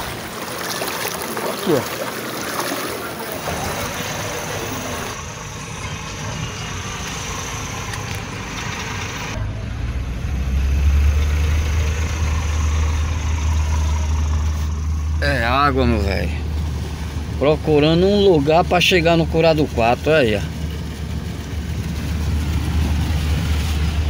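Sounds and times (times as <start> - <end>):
water rushing and splashing: 0.0 - 9.5, 10.3 - 24.0
low engine drone: 0.0 - 24.0.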